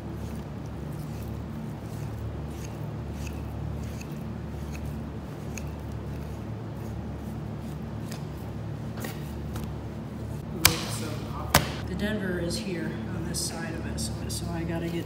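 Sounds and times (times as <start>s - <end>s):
steady low hum: 0.0s - 15.0s
knife clicks and scrapes: 0.2s - 7.0s.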